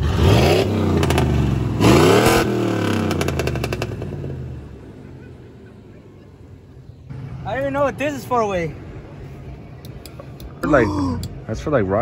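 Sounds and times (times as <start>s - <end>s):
truck engine revving: 0.0s - 4.6s.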